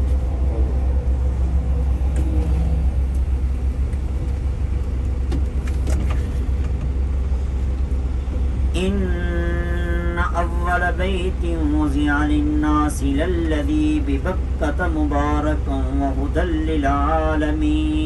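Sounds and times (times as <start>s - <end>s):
vehicle engine and road noise: 0.0s - 18.0s.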